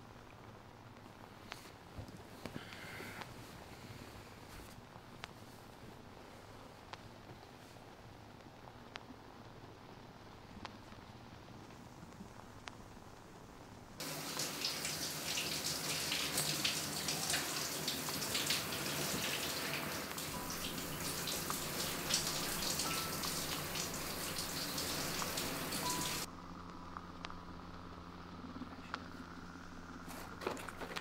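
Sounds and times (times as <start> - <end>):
shower water spraying: 14.0 - 26.3.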